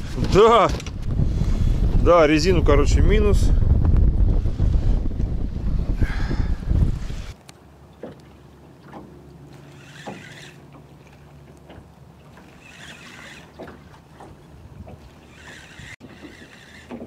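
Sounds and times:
fishing reel handle turning: 0:09.5 - 0:10.8, 0:12.4 - 0:13.8, 0:15.2 - 0:17.0.

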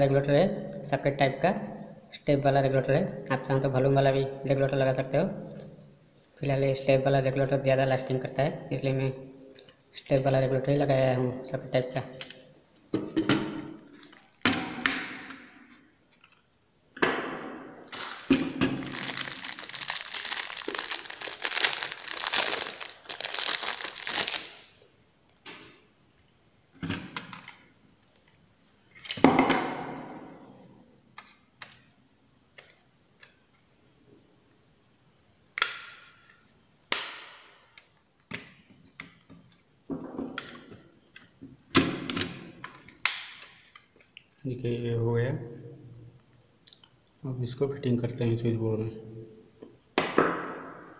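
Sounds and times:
dense plastic crackling: 0:17.9 - 0:24.5
plastic clicks and snaps: 0:42.1 - 0:44.2.

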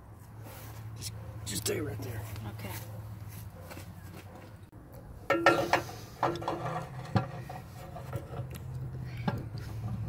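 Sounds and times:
metal tool scraping and squeaking: 0:05.3 - 0:08.6.

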